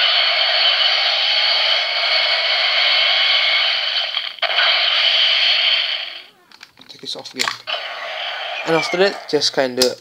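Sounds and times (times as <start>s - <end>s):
toy speaker hissing rush effect: 0.0s - 6.5s, 7.7s - 9.5s.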